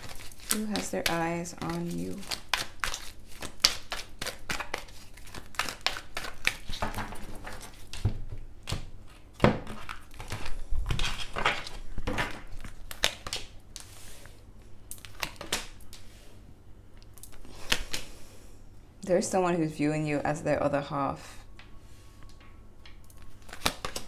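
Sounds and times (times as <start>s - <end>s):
cards being shuffled: 23.1s - 24.0s.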